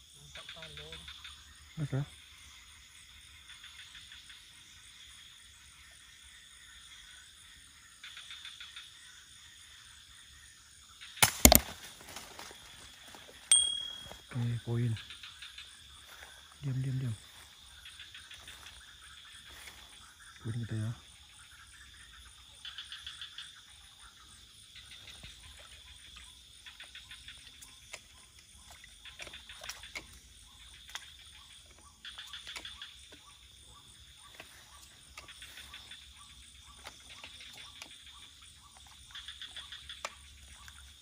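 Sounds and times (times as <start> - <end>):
high insect trill: 0.0 - 41.0
rapid clicking calls: 11.0 - 41.0.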